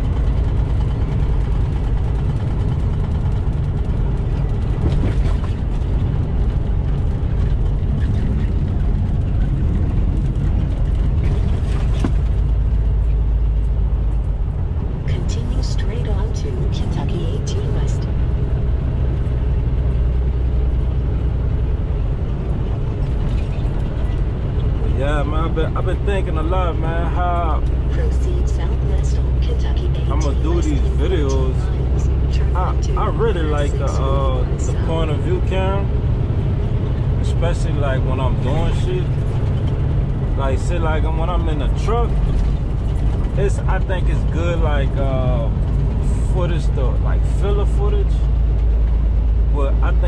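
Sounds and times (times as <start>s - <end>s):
road noise: 0.0s - 50.0s
truck engine rumble: 0.0s - 50.0s.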